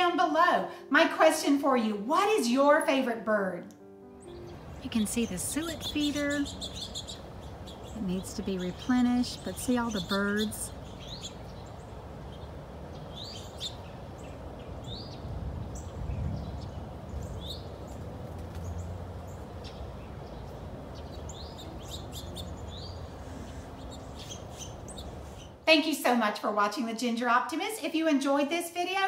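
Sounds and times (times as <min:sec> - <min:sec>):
songbirds chirping: 0:03.8 - 0:25.7
steady low rumble: 0:04.3 - 0:25.6.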